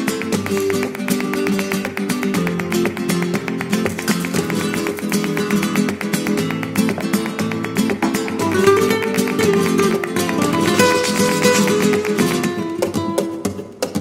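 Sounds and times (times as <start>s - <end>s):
flamenco acoustic guitar: 0.0s - 14.0s.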